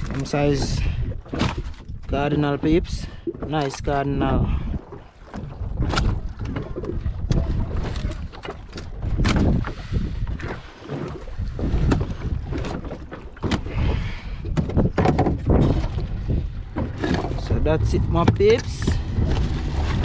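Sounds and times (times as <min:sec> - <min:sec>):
wind rumbling on microphone: 0:00.0 - 0:20.0
short knocks and clatter: 0:14.5 - 0:16.0.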